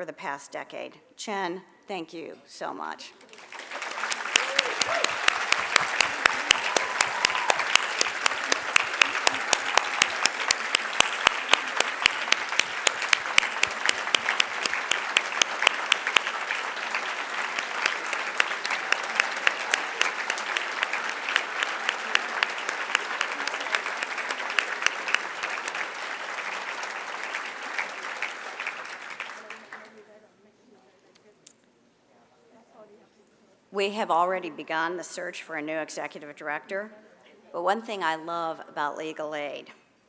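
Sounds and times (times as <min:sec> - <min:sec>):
audience applauding: 0:03.2 - 0:30.0.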